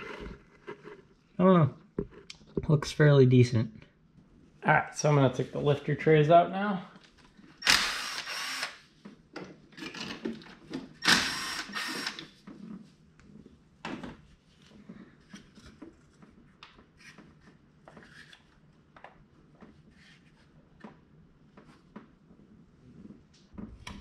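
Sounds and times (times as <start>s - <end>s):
electric ratchet running: 7.6s - 8.8s, 11.0s - 12.2s.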